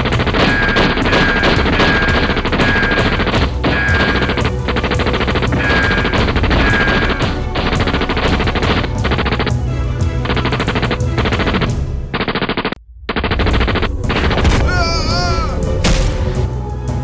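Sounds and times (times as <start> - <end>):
automatic gunfire bursts: 0.0 - 9.5
background music score: 0.0 - 17.0.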